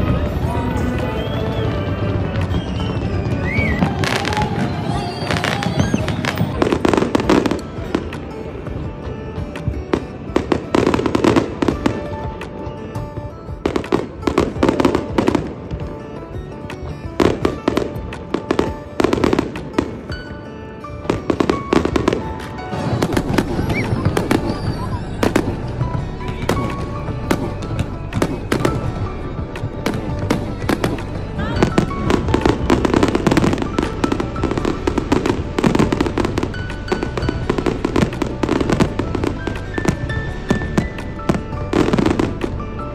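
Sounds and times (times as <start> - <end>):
fireworks crackling: 0.0 - 42.9
music playing: 0.0 - 42.9.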